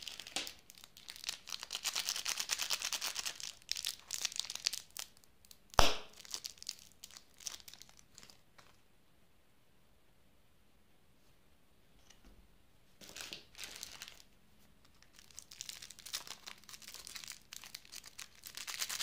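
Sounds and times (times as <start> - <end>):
plastic wrapper crinkling: 0.0 - 8.8, 13.0 - 19.0
sharp wrapper snap: 5.0 - 6.4.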